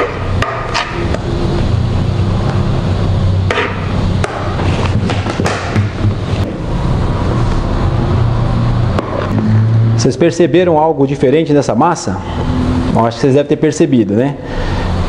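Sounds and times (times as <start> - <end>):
low hum: 0.0 - 5.2.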